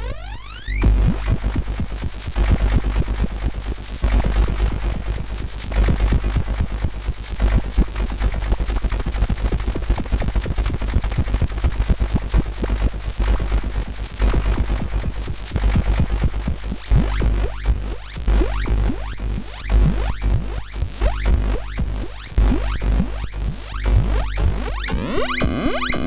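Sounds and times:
low synthesizer drone: 24.0s - 26.0s
synthesizer clicking pulses: 24.0s - 26.0s
synthesizer rising chirps: 24.8s - 26.0s.

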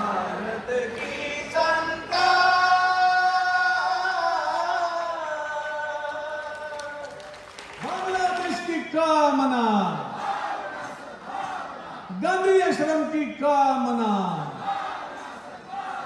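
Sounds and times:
voices singing in unison: 0.0s - 7.1s, 10.1s - 12.1s, 14.5s - 16.0s.

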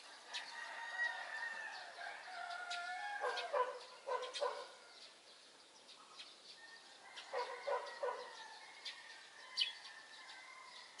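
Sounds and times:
rooster crowing: 0.4s - 3.5s, 6.8s - 11.0s
small bird chirping: 2.4s - 9.0s, 9.6s - 10.9s.

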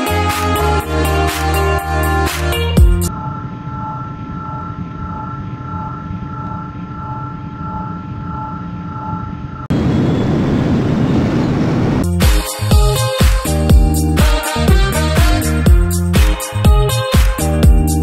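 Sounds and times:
music with a beat: 0.0s - 3.1s, 12.0s - 18.0s
high steady tones: 0.0s - 10.5s
rocket roar: 9.7s - 12.0s.

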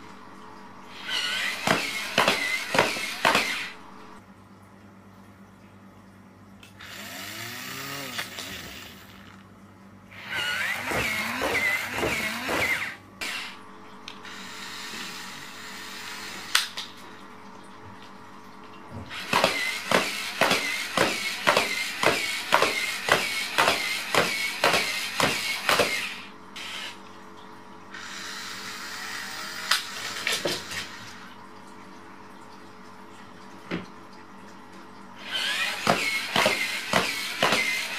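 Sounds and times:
toy robot motors whirring: 0.9s - 3.7s, 6.8s - 9.4s, 10.1s - 13.6s, 19.1s - 27.0s, 35.2s - 37.9s.

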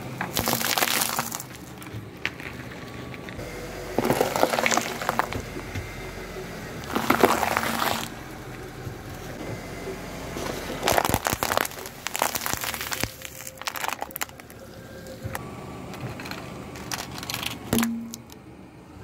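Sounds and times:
tyre squashing bell peppers: 0.2s - 2.5s, 6.8s - 8.2s, 10.7s - 14.6s
plastic cup crackling and crumpling: 0.2s - 3.3s, 4.0s - 5.4s, 6.8s - 8.2s, 10.7s - 15.3s, 16.0s - 18.4s.

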